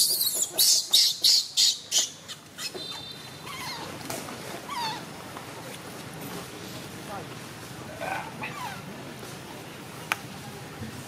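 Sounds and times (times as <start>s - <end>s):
baby monkey shrieking: 0.0s - 3.9s, 4.7s - 5.1s.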